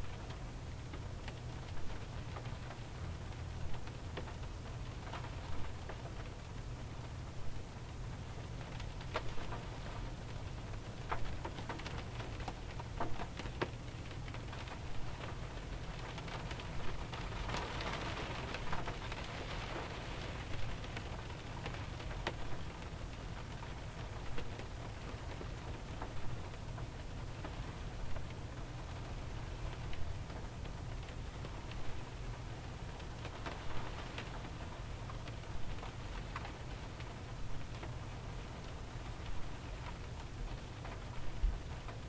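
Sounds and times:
light rain on a car body: 0.0 - 42.0.

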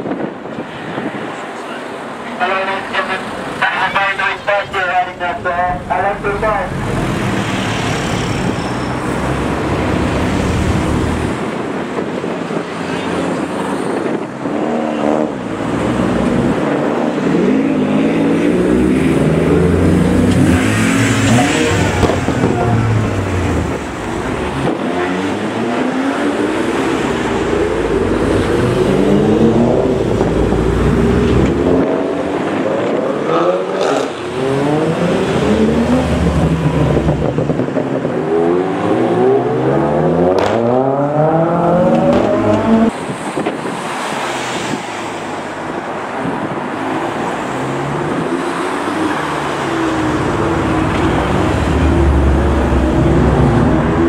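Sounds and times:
tyre and engine noise: 0.0 - 54.0
cars accelerating past: 5.2 - 54.0.

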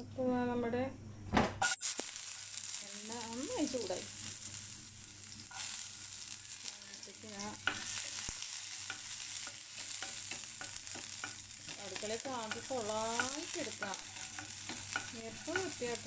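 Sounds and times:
onions sizzling in a frying pan: 1.6 - 16.0
wooden spatula scraping a pan: 8.8 - 16.0.

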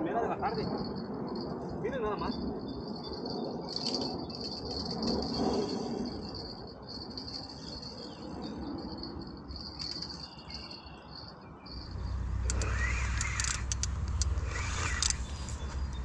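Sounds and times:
insects chirping: 0.0 - 16.0
low rumble: 11.7 - 16.0
clicks and rustling: 12.4 - 16.0.

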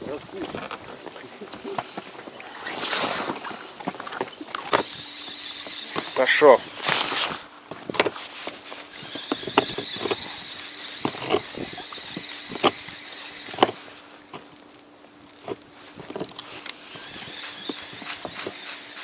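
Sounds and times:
faint steady hum: 0.0 - 19.0
rod and reel tapping: 3.4 - 19.0
fishing reel cranking: 4.5 - 7.4, 8.9 - 15.6, 16.2 - 19.0.

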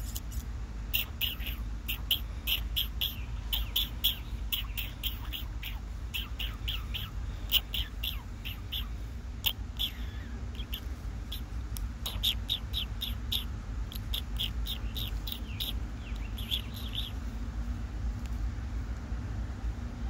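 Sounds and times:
steady low rumble: 0.0 - 20.0
raccoons chirping: 0.8 - 17.5.

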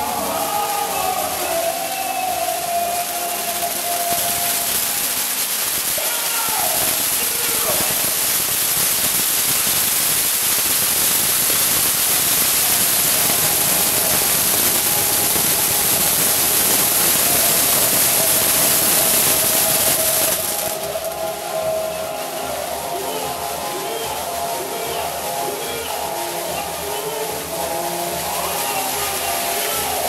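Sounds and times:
fireworks and flares hissing: 0.0 - 30.0
large crowd noise: 0.0 - 30.0.

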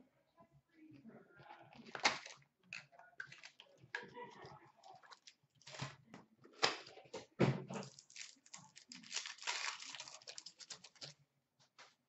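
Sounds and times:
wrapper crinkling and rustling: 4.8 - 6.0, 7.7 - 11.2
wrapper ripping open: 7.8 - 11.2.

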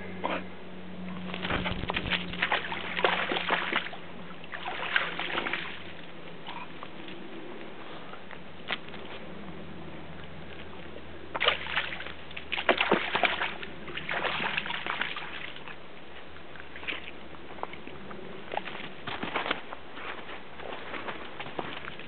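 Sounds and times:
dog splashing through water: 1.2 - 6.1, 11.4 - 15.8.

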